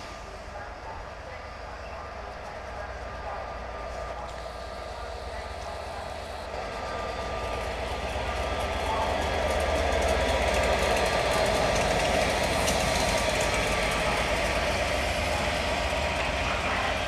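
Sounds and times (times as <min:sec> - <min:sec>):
diesel locomotive running: 0:00.0 - 0:17.0
train on rails: 0:00.0 - 0:17.0.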